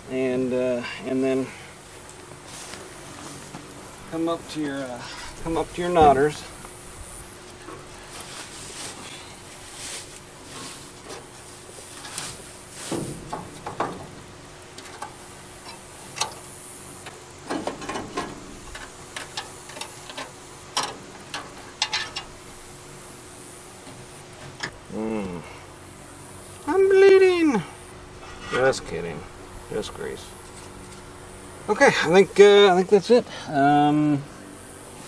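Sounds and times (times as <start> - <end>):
wire clicking and scraping on metal: 11.9 - 22.6, 28.1 - 31.2.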